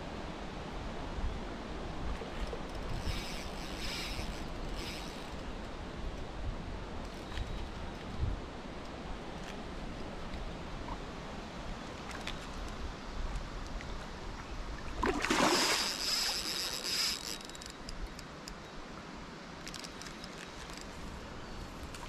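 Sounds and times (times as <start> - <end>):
water: 0.0 - 22.0
breeze: 2.2 - 5.7
water splashing: 14.8 - 16.9.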